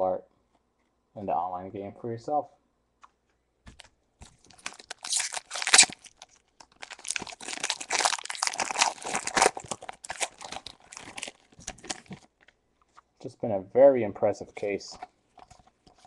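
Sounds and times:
foil wrapper crinkling and tearing: 0:04.2 - 0:12.5.

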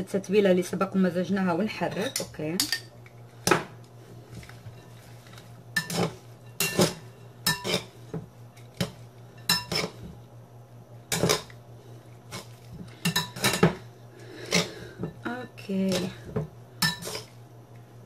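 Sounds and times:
utensils clinking on glass bowl: 0:05.8 - 0:07.9, 0:08.8 - 0:10.0, 0:13.0 - 0:13.8, 0:16.8 - 0:17.3.

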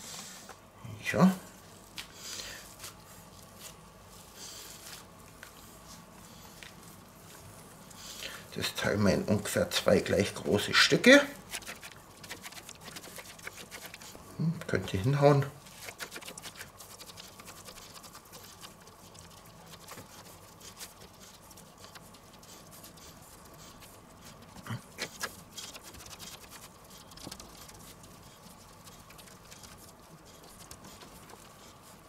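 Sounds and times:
hands patting minced meat: 0:11.4 - 0:14.2, 0:15.6 - 0:32.0.

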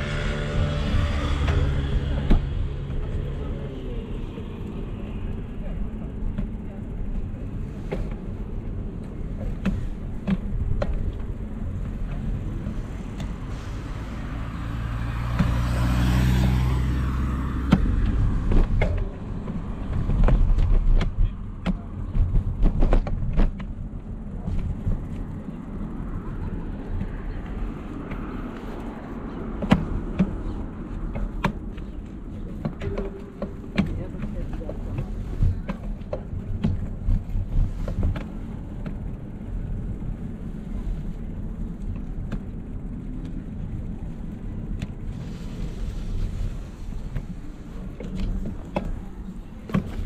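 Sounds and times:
engine passing: 0:00.0 - 0:06.2, 0:11.6 - 0:20.8
bicycle riding rumble: 0:00.0 - 0:50.0.

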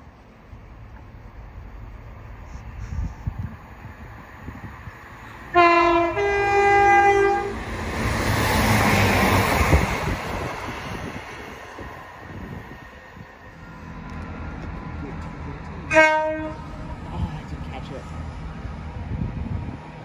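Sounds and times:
train passing by: 0:00.0 - 0:20.0
two-tone train horn: 0:05.5 - 0:07.6, 0:15.9 - 0:16.9.

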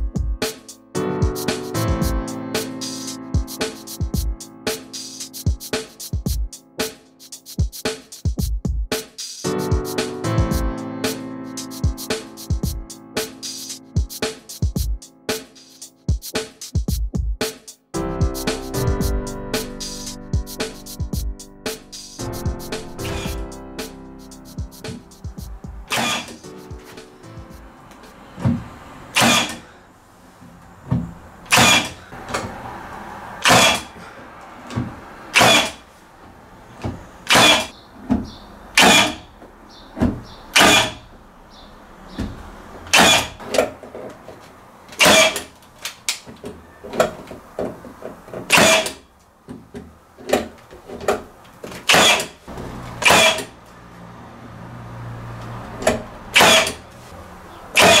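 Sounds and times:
nail gun firing: 0:25.9 - 0:26.4, 0:29.2 - 0:29.6, 0:31.5 - 0:32.0, 0:33.4 - 0:33.8, 0:35.4 - 0:35.8, 0:37.3 - 0:37.7, 0:38.8 - 0:39.2, 0:40.6 - 0:41.0, 0:42.9 - 0:43.3, 0:45.0 - 0:45.4, 0:48.5 - 0:49.0, 0:51.9 - 0:52.3, 0:53.0 - 0:53.5, 0:56.4 - 0:56.8, 0:57.8 - 0:58.0.

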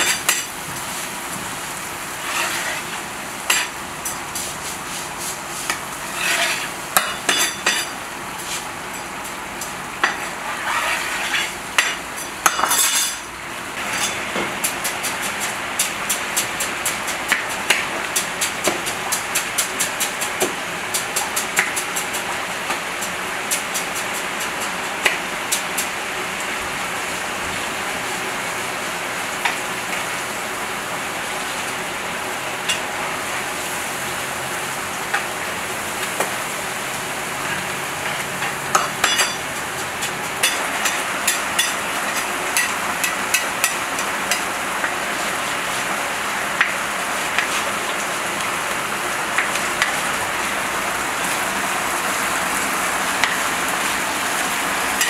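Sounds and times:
bubbling sizzle with crackles: 0:00.0 - 0:55.0
metal skimmer scraping a pot: 0:02.2 - 0:02.9, 0:06.0 - 0:08.6, 0:10.1 - 0:11.6.

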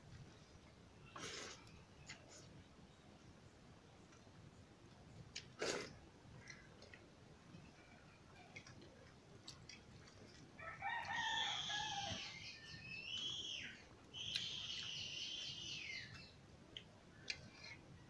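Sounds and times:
bird crowing: 0:10.6 - 0:12.6.

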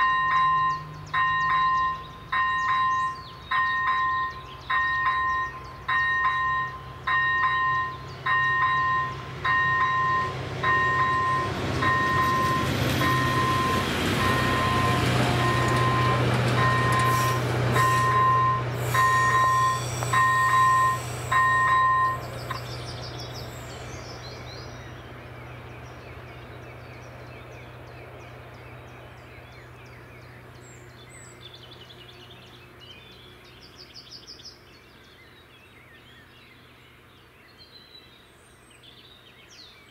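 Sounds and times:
crossing warning bell beeping: 0:00.0 - 0:23.7
train passing: 0:00.0 - 0:33.7
low train hum: 0:00.0 - 0:39.9.

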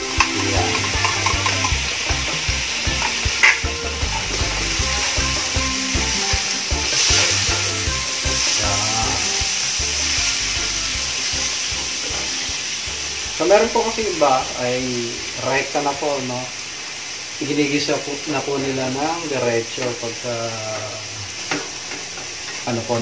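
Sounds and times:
vegetables sizzling in oil: 0:00.0 - 0:23.0
spatula scraping pan: 0:00.1 - 0:01.8.

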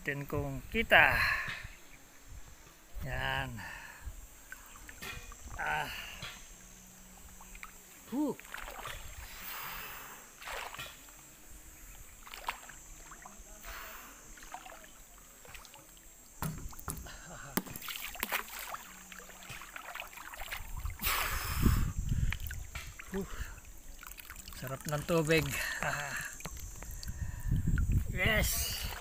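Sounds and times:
pool water sloshing: 0:03.7 - 0:29.0
water splash: 0:07.3 - 0:09.6, 0:10.3 - 0:11.3, 0:12.1 - 0:27.2.

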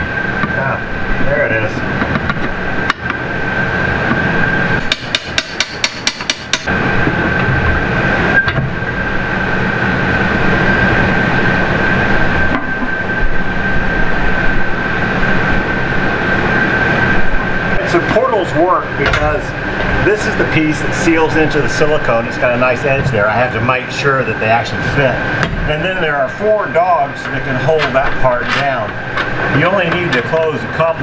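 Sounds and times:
noisy hum: 0:00.0 - 0:31.0
steady high whine: 0:00.0 - 0:31.0.

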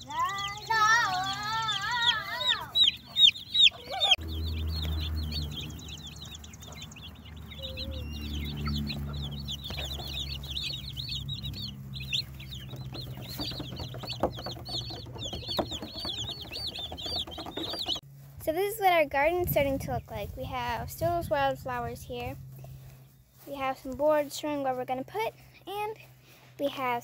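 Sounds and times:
chicks peeping: 0:00.0 - 0:18.0, 0:19.5 - 0:27.0
low steady rumble: 0:18.0 - 0:26.6.

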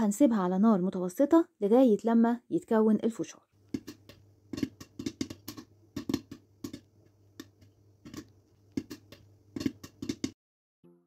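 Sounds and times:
low steady hum: 0:03.3 - 0:10.4
popcorn popping in a pan: 0:03.6 - 0:10.4.

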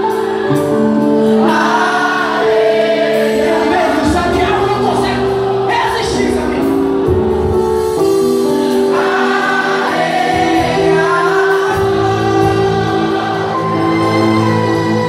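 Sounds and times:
choir singing gospel song: 0:00.0 - 0:15.0.

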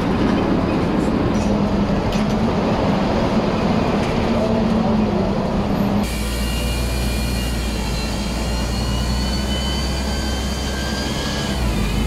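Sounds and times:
bus engine rumble: 0:00.0 - 0:12.0
road noise: 0:00.0 - 0:12.0
high whining tones: 0:06.2 - 0:12.0.

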